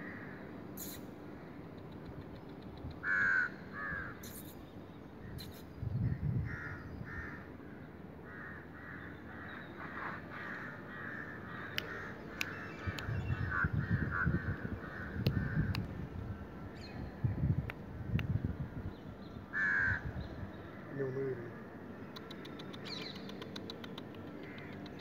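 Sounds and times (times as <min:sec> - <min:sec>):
crows cawing: 0:00.0 - 0:00.4, 0:03.0 - 0:04.2, 0:06.4 - 0:15.8, 0:19.5 - 0:20.1, 0:24.4 - 0:24.8.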